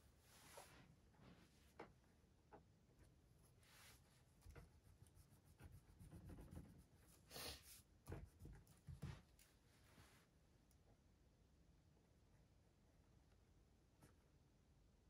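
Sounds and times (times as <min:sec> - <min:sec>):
pen scratching on paper: 0:04.4 - 0:08.6.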